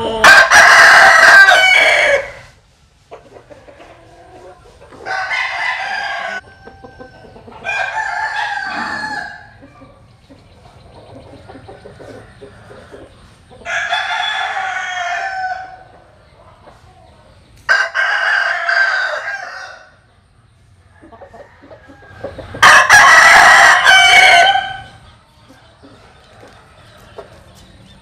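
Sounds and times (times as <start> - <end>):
rooster crowing: 0.0 - 2.5, 5.0 - 9.8, 13.6 - 15.8, 17.7 - 20.0, 20.9 - 25.0.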